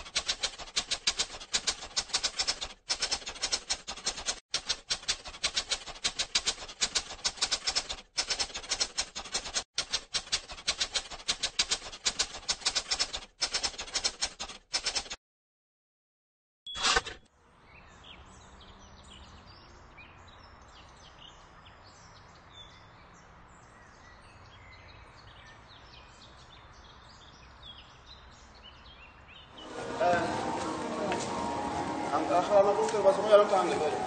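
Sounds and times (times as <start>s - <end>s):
typewriter key clacks: 0.0s - 15.2s.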